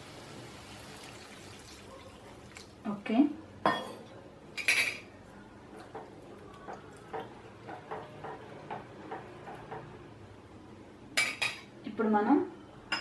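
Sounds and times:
curry splashing: 0.7 - 2.9.

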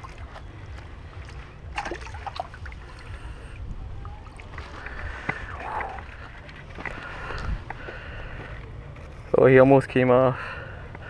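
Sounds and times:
wind rumbling on microphone: 0.0 - 8.4.

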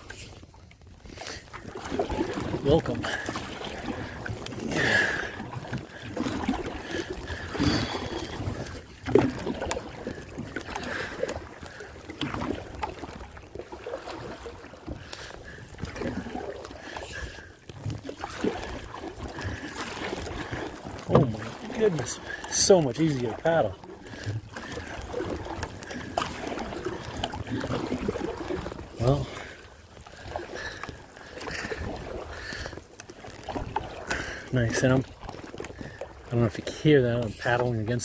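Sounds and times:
paddle strokes: 0.0 - 38.0
water splashing along a hull: 0.0 - 38.0.

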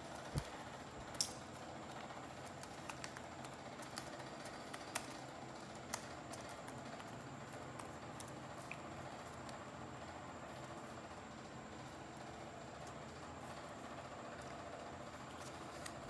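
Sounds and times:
newspaper crinkling: 15.2 - 16.0.

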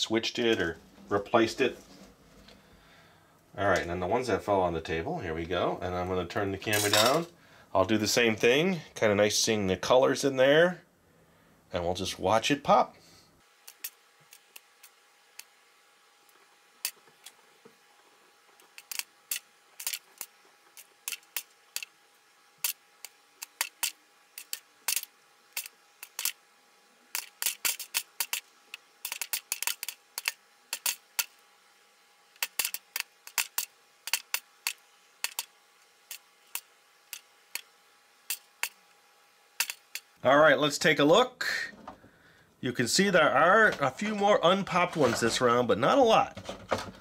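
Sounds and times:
popcorn popping: 13.6 - 15.5, 18.5 - 26.4, 27.1 - 31.4, 32.3 - 38.9, 39.6 - 40.2.

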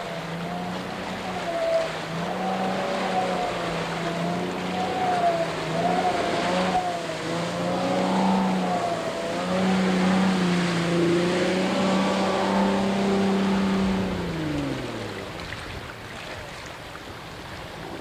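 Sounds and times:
jetboat engine running: 0.0 - 18.0.

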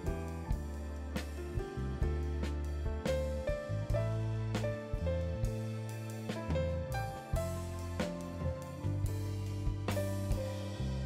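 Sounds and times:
background music with steady beat: 0.0 - 11.0.

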